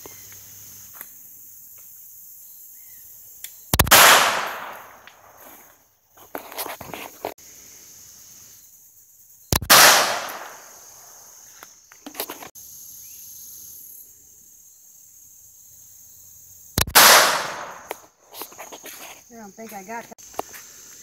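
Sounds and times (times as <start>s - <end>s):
pistol shots with echo: 3.8s - 5.0s, 9.6s - 10.6s, 16.8s - 17.9s.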